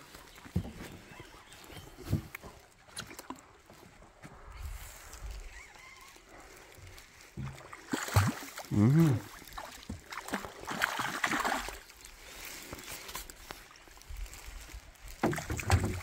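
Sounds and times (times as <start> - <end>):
fish thrashing and splashing: 6.2 - 16.0
person exclaiming: 8.7 - 9.3.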